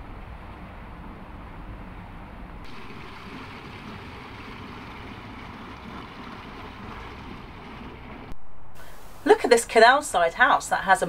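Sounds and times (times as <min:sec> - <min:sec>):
water rushing into lock chamber: 0:02.6 - 0:08.4.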